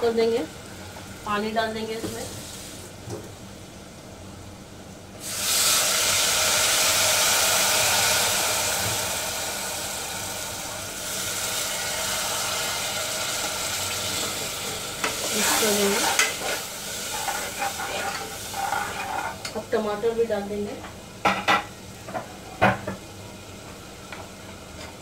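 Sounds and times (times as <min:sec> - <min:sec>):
water sizzling in hot oil: 0:00.0 - 0:03.0, 0:05.2 - 0:20.6.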